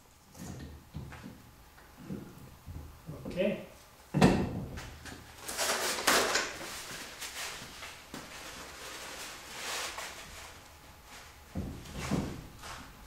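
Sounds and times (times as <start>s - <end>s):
scraping and rustling: 5.4s - 13.0s.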